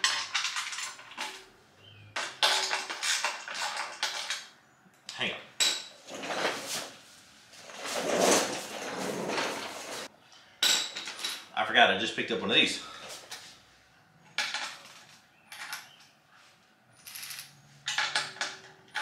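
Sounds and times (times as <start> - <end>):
metal bolts and nuts clinking: 0.0 - 1.5, 2.2 - 4.5, 17.0 - 19.0.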